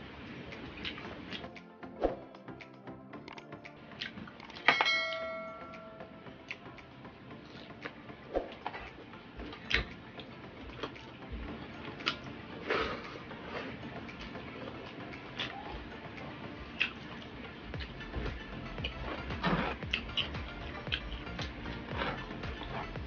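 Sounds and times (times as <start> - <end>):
wet chewing and lip-smacks: 0.5 - 1.7, 2.6 - 4.6, 6.4 - 23.0
dish clinking: 4.6 - 6.1.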